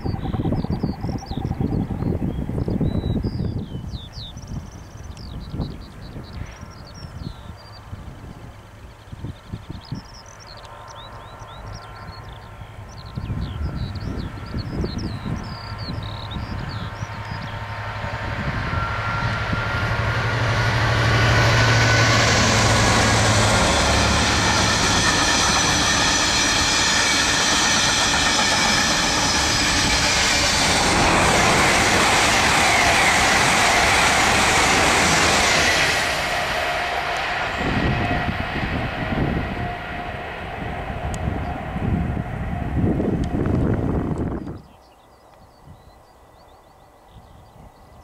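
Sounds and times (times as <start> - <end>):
locomotive engine drone: 4.5 - 45.4
train wagons rumbling: 13.8 - 44.5.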